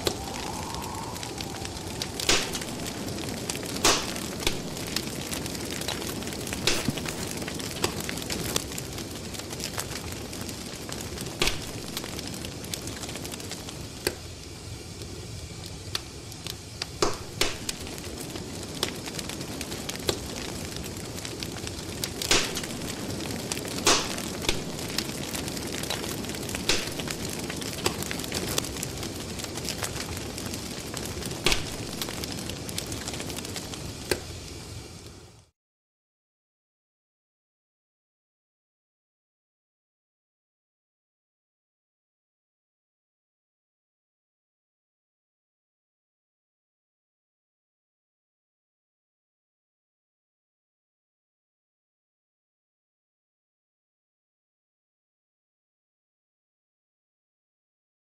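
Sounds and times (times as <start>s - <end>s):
fire crackling: 0.0s - 35.5s.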